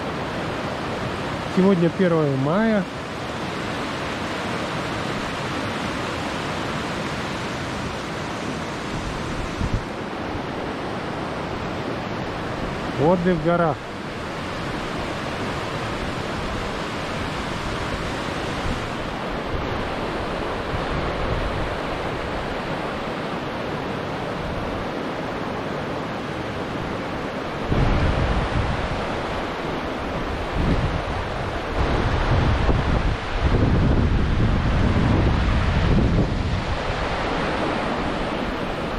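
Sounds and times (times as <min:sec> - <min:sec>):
river rushing over rocks: 0:00.0 - 0:38.9
wind buffeting microphone: 0:07.2 - 0:12.9, 0:26.7 - 0:38.9.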